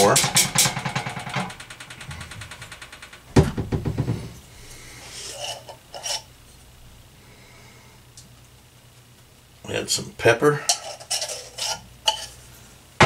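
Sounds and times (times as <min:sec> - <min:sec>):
metal cookware clanking: 0:05.2 - 0:06.3, 0:10.6 - 0:12.4
cookware knocks and scrapes: 0:10.7 - 0:12.4.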